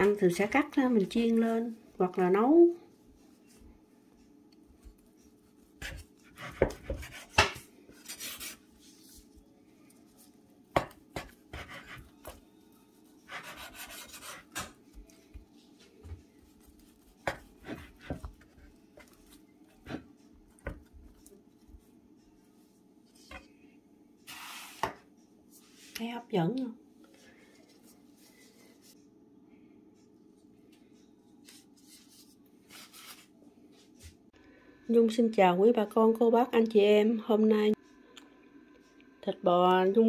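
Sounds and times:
knife scraping strokes: 0:05.2 - 0:09.2, 0:11.2 - 0:12.4, 0:13.1 - 0:14.7, 0:24.3 - 0:25.0.

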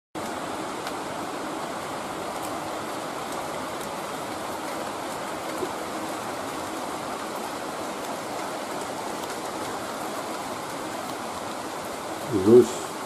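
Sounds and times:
heavy rain falling: 0:00.2 - 0:13.0.

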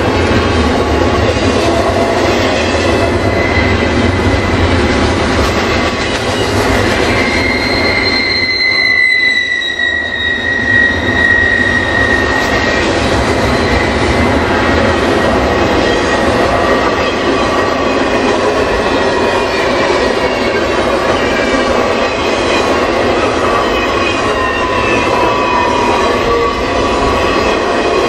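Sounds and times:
train wheels rumbling on rail: 0:00.0 - 0:28.0
high wheel squeal: 0:02.0 - 0:04.5, 0:06.0 - 0:14.0, 0:16.8 - 0:28.0.

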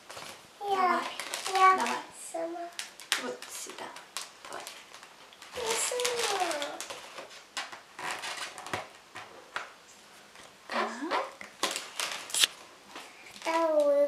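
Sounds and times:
balloons rubbing and squeaking: 0:00.0 - 0:02.6, 0:05.5 - 0:09.5, 0:10.7 - 0:12.5.

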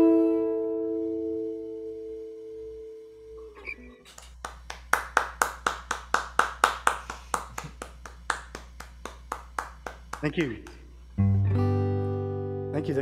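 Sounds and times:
person clapping: 0:04.0 - 0:11.0
acoustic guitar chord: 0:11.2 - 0:13.0.

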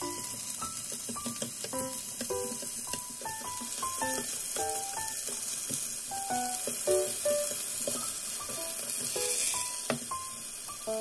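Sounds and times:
chicken sizzling in a pan: 0:00.0 - 0:11.0
light background music: 0:00.0 - 0:11.0
chopsticks stirring: 0:00.3 - 0:05.7.

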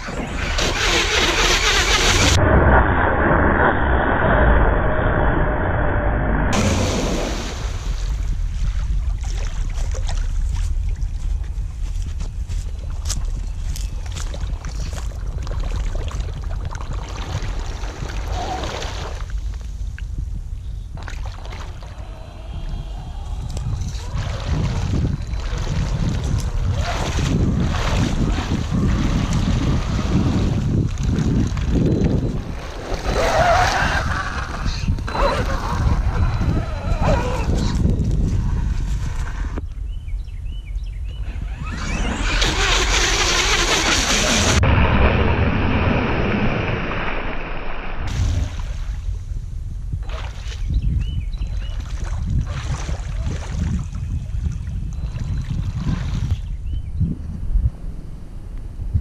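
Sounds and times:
wind rumble on microphone: 0:00.0 - 0:47.3, 0:48.0 - 0:59.0
tires splashing through water: 0:24.0 - 0:37.4.

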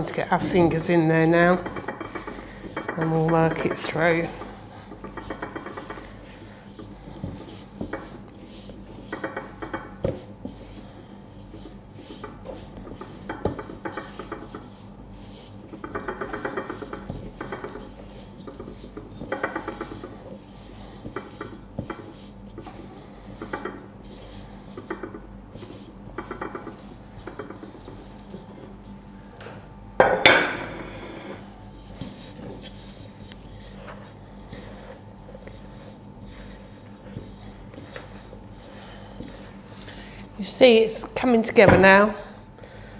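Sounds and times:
hands rubbing dough in bowl: 0:00.0 - 0:29.8, 0:30.9 - 0:42.1.

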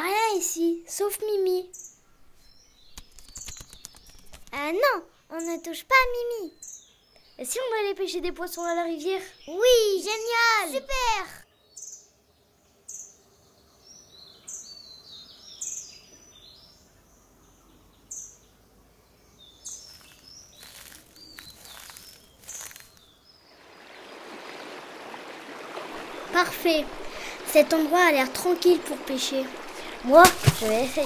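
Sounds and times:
small birds chirping: 0:00.2 - 0:31.0
flowing stream: 0:19.9 - 0:31.0.

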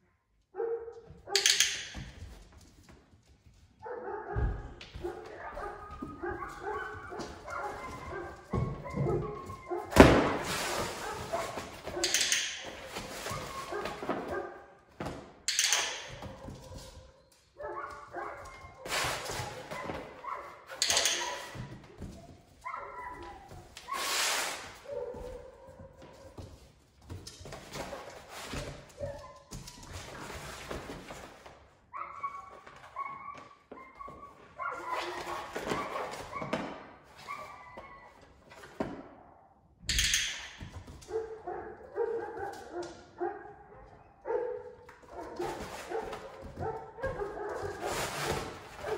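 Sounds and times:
paws thudding on floor: 0:02.0 - 0:12.0, 0:16.1 - 0:23.9, 0:24.8 - 0:31.7, 0:44.8 - 0:48.9
scuffle of movement: 0:02.3 - 0:12.0
puppy whining and yipping: 0:37.2 - 0:38.2.

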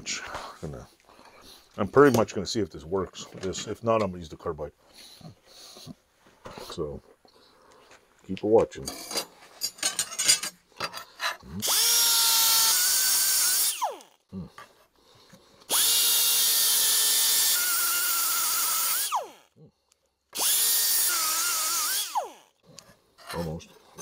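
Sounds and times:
air die grinder whining: 0:11.6 - 0:14.1, 0:15.7 - 0:19.5, 0:20.4 - 0:22.5.

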